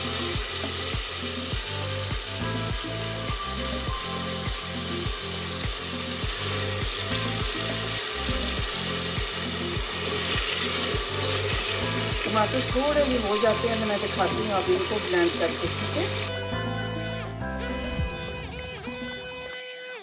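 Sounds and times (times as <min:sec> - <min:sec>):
music with beat and bass: 0:00.0 - 0:13.5, 0:15.9 - 0:19.5
oil sizzling in a pot: 0:00.0 - 0:16.4.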